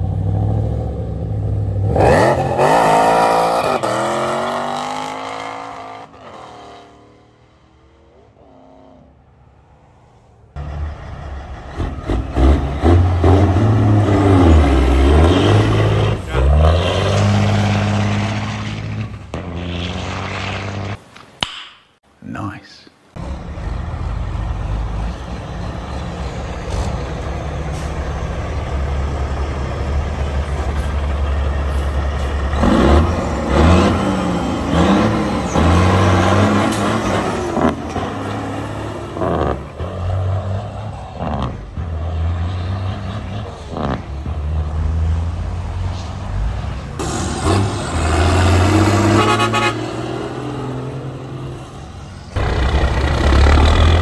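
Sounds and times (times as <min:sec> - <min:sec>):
truck diesel engines accelerating: 0:00.0 - 0:21.1, 0:23.1 - 0:54.0
truck horns blasting: 0:47.0 - 0:50.3.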